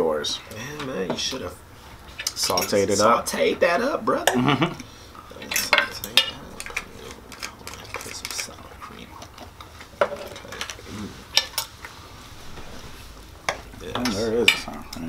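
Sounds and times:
cutlery clinking on plates: 5.4 - 8.5.

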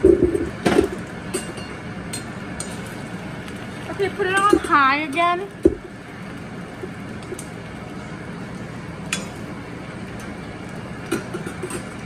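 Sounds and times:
fries sizzling in oil: 0.0 - 12.0
metal spoons clinking on pan: 1.3 - 2.9, 4.2 - 5.4, 9.1 - 9.4, 11.1 - 12.0.

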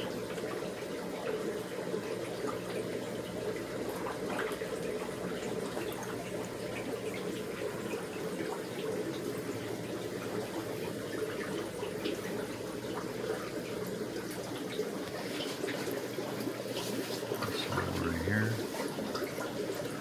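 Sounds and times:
aquarium water trickling: 0.0 - 20.0.

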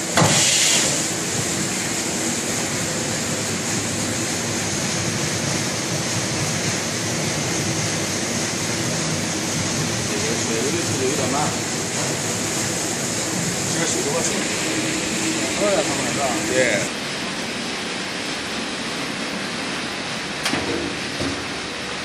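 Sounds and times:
machinery running: 0.0 - 17.0
brief hiss: 0.2 - 1.1.

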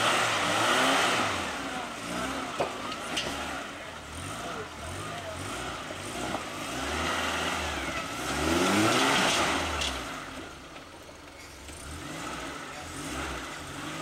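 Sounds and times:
engine revving in bursts: 0.0 - 10.6, 11.7 - 14.0.

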